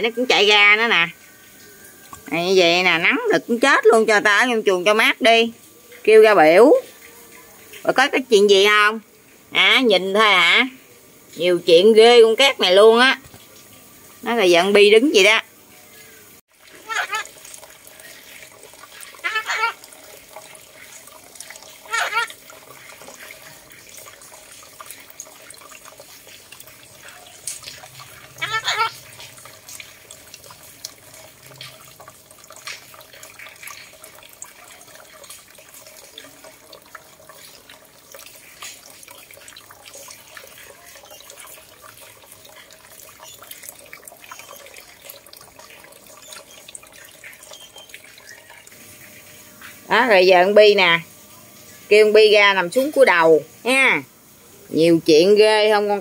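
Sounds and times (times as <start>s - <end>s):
running water: 0.0s - 56.0s
parakeet warbling call: 16.8s - 17.3s, 19.2s - 19.8s, 21.8s - 22.4s, 28.2s - 29.2s.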